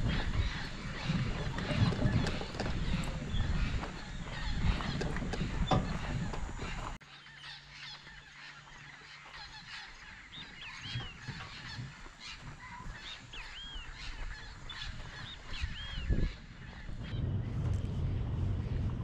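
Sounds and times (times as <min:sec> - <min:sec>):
birds calling in chorus: 0:00.0 - 0:19.0
loud low rumble: 0:15.7 - 0:19.0.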